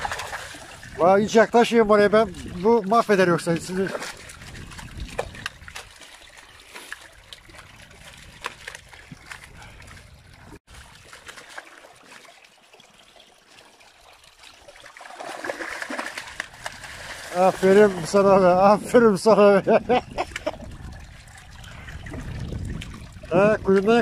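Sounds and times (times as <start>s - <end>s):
small splashes: 0.0s - 1.0s, 2.0s - 18.2s
water trickling: 0.0s - 24.0s.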